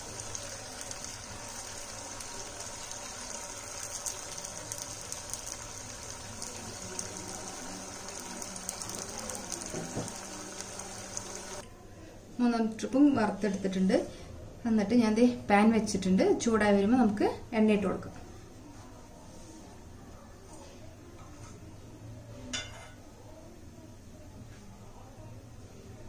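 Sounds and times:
food sizzling in oil: 0.0 - 11.6.

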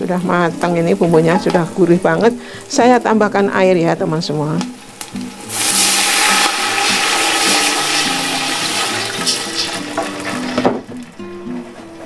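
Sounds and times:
water pouring into pot: 5.0 - 10.4.

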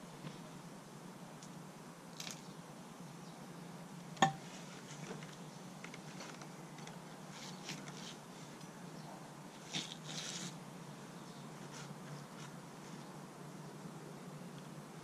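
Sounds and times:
steady low hum: 0.0 - 9.7
scrape and rustle: 4.4 - 6.5, 7.2 - 8.8, 9.5 - 10.6, 11.4 - 13.2.

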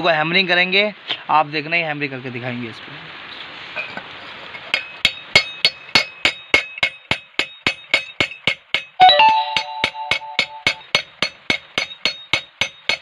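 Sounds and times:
hammer tapping metal mug: 4.8 - 13.0.

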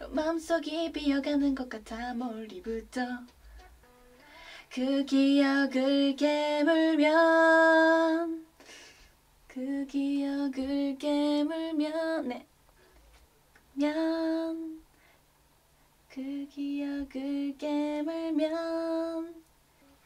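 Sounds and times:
woman singing: 0.0 - 8.5, 9.5 - 12.5, 13.7 - 14.8, 16.1 - 19.4.

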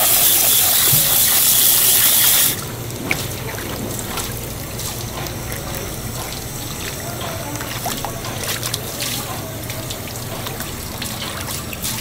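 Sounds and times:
rushing water: 0.0 - 12.0
water trickling and dripping: 0.0 - 12.0
steady low hum: 0.9 - 12.0.

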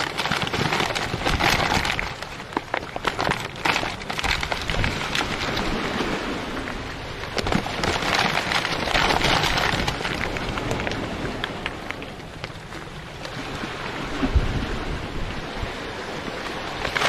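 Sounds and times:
bags crumpling and crackling: 0.0 - 5.8, 7.2 - 12.0.

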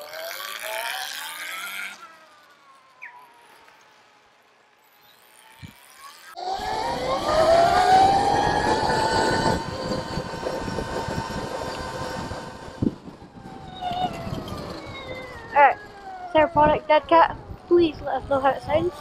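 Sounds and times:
electric motorbike motor whining: 0.0 - 19.0
wind rumble on microphone: 6.6 - 19.0.

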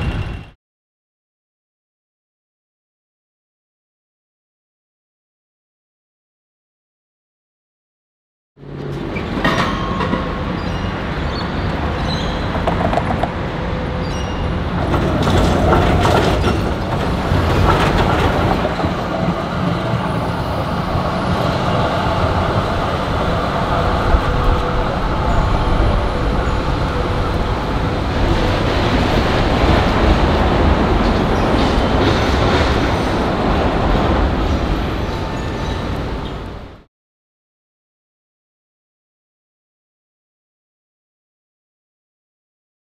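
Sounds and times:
city street noise: 0.0 - 0.6, 8.6 - 36.9
tram wheels rumbling on rails: 0.0 - 0.6, 8.6 - 36.9.

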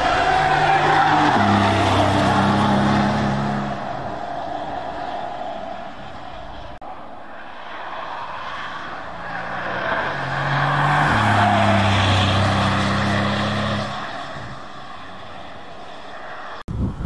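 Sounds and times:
car engine and exhaust passing: 0.0 - 16.6
tyre and wind rush: 16.2 - 17.0.

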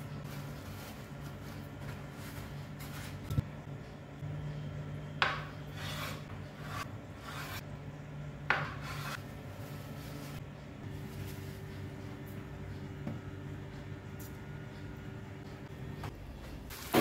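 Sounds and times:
knife scraping on board: 5.2 - 7.6, 8.5 - 9.2.

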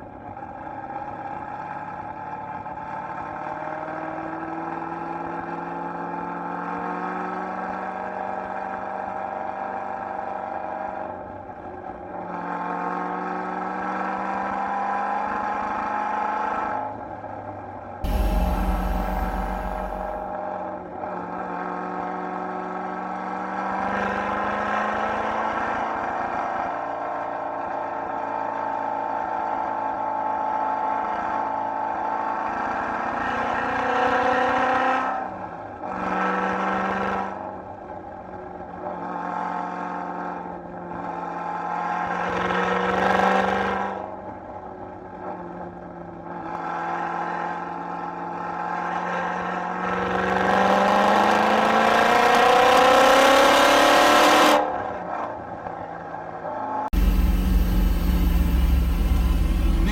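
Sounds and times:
car engine running under load: 18.0 - 20.3, 56.9 - 59.9.

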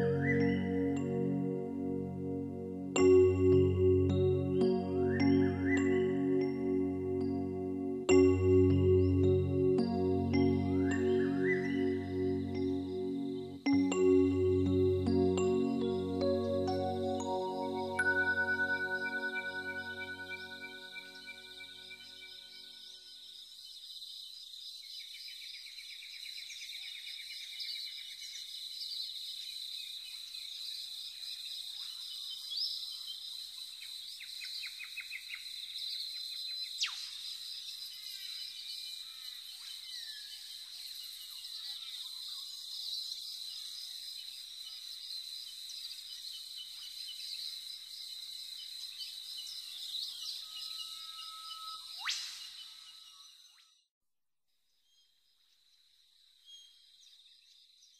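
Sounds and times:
bird chirps and trills: 0.0 - 23.1.

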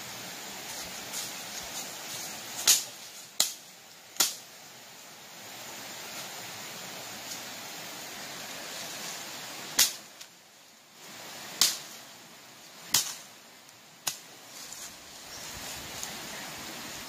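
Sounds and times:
steady hiss: 0.0 - 17.0
sharp cracks: 2.6 - 3.6, 4.2 - 4.4, 9.8 - 10.3, 11.6 - 12.0, 12.9 - 13.3.

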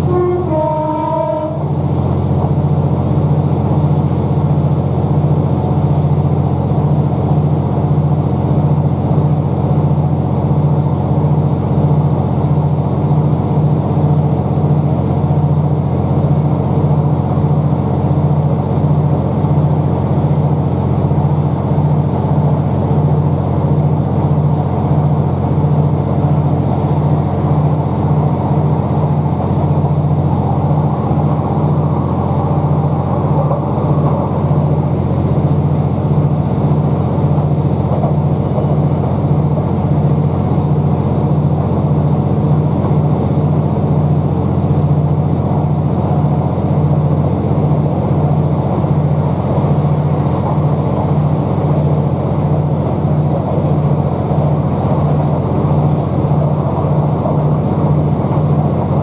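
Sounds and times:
diesel generator drone: 0.0 - 59.0
train wheels rumbling on rails: 0.0 - 59.0.

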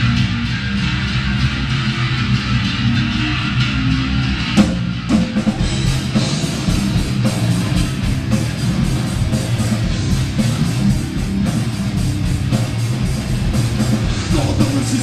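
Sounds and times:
live rock band playing: 0.0 - 15.0
pounding drum beat: 4.4 - 15.0.

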